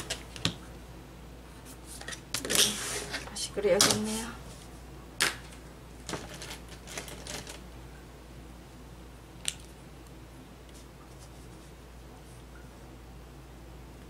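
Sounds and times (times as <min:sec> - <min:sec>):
steady low hum: 0:00.0 - 0:14.0
plastic ruler and pencil rustling: 0:06.1 - 0:07.6.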